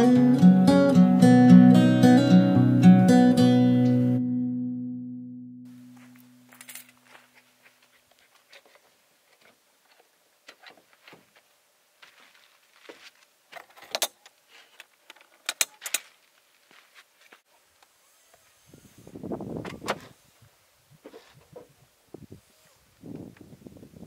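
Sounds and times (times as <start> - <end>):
keys jangling: 6.5 - 7.2.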